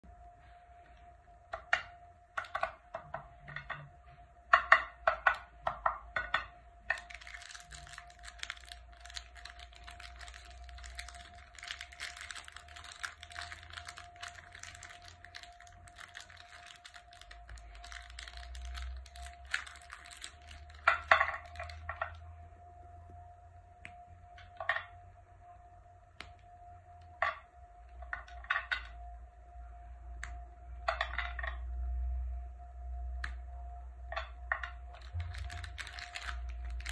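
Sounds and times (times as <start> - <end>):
plastic wrappers crinkling and tearing: 6.9 - 22.2, 34.6 - 36.9.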